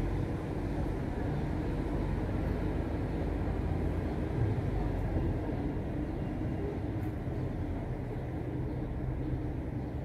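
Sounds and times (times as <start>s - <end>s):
tram rumbling: 0.0s - 10.0s.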